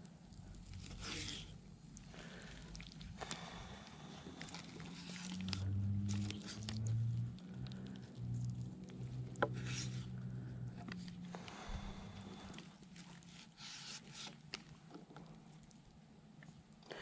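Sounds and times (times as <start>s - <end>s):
low wavering hum: 2.3s - 13.5s.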